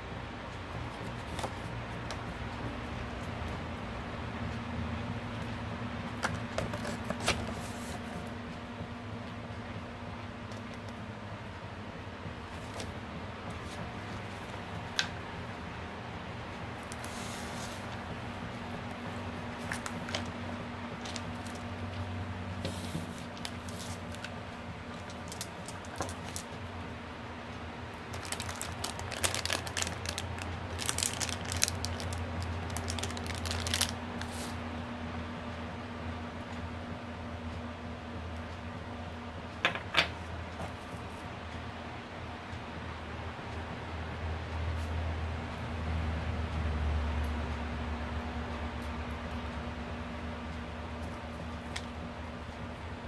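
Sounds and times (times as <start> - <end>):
low room hum: 0.0 - 53.0
paper and cardboard rustling: 6.6 - 8.2, 22.6 - 24.3, 28.2 - 34.6
plastic bag crinkling: 19.6 - 20.4, 21.0 - 21.7, 22.7 - 24.3, 24.9 - 26.6, 28.0 - 34.5.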